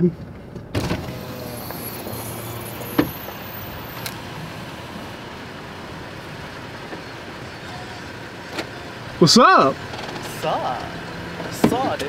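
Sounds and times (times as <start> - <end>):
vehicle running hum: 0.0 - 12.0.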